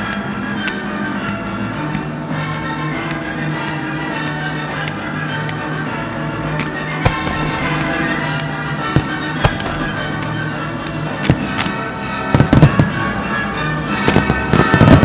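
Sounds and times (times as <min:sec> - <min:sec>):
music playing: 0:00.0 - 0:15.0
fireworks bangs: 0:06.6 - 0:15.0.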